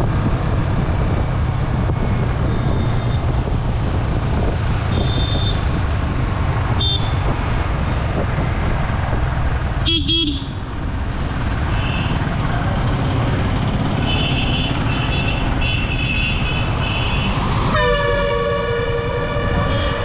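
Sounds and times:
motorcycle wind and road noise: 0.0 - 20.0
horn toots: 14.0 - 20.0
truck horn blast: 14.0 - 20.0.

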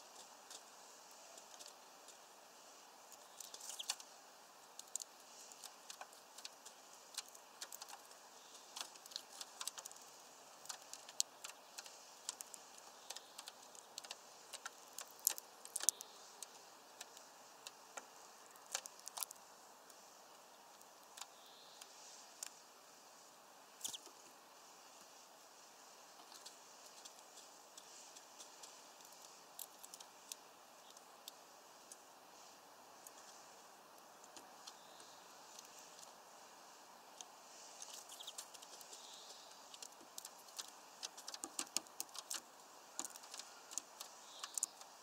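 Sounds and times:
steady hiss: 0.0 - 45.0
bird cracking seeds: 1.3 - 2.2, 3.1 - 22.6, 23.8 - 24.2, 26.2 - 32.0, 37.1 - 45.0.

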